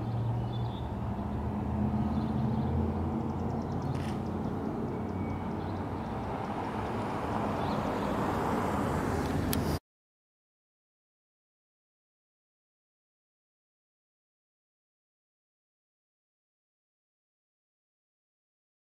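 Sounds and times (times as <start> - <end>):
low traffic rumble: 0.0 - 9.8.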